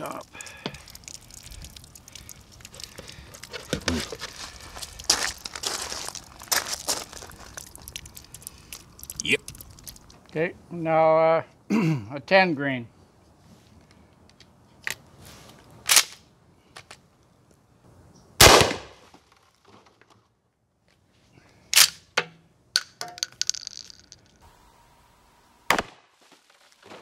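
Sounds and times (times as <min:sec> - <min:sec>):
shotgun shot with echo: 0:18.4 - 0:19.0, 0:25.7 - 0:26.1
gun handling clicks and knocks: 0:21.7 - 0:24.4.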